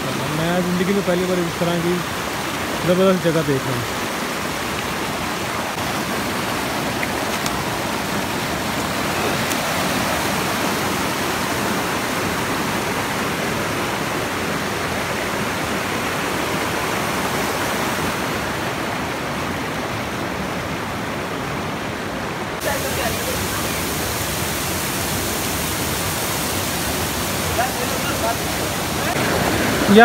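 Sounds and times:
waterfall pouring: 0:22.6 - 0:30.0.

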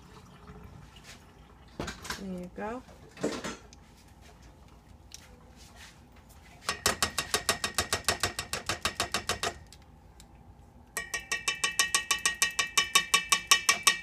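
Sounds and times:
spoon knocking in ringing saucepan: 0:06.7 - 0:09.6, 0:11.0 - 0:14.0.

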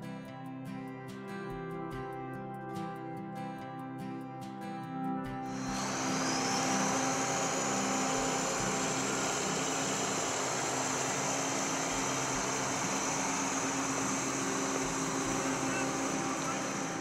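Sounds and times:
sprayer engine running: 0:05.5 - 0:17.0
thin high whine: 0:05.5 - 0:17.0.

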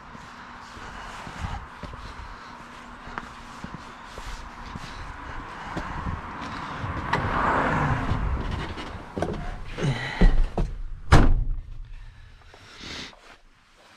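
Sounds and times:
knocks and thuds in truck cab: 0:07.9 - 0:11.8
truck cab door slamming: 0:10.3 - 0:11.7.

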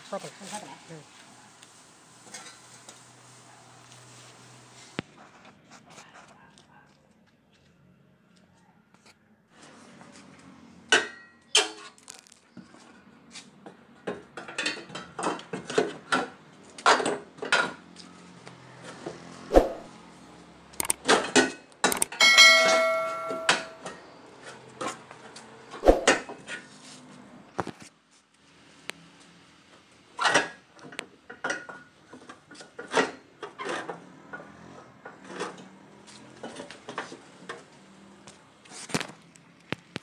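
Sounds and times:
ringing metal clang: 0:22.1 - 0:24.0.

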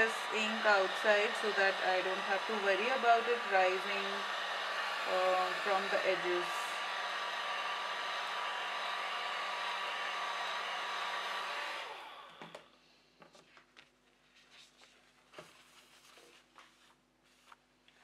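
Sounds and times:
hair dryer blowing: 0:00.0 - 0:12.7.

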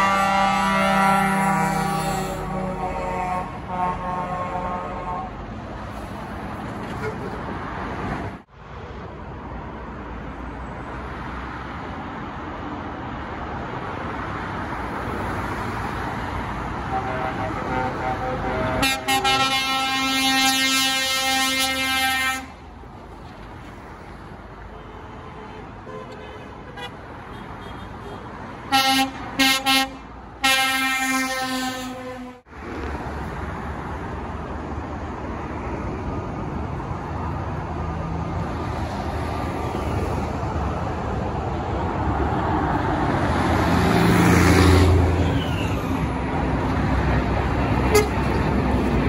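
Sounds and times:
air horn blasts: 0:00.0 - 0:05.4, 0:16.9 - 0:22.6, 0:27.6 - 0:32.5, 0:47.8 - 0:48.3
lorry engine and tyre noise: 0:00.0 - 0:49.0
short horn toots: 0:47.9 - 0:48.3.

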